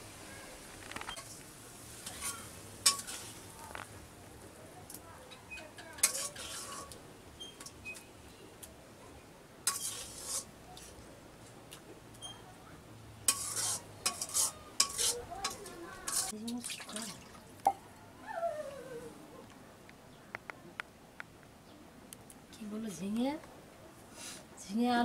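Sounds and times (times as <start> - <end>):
metal ladle scraping a wok: 2.0 - 3.5, 5.7 - 7.0, 9.6 - 11.0, 13.3 - 16.4.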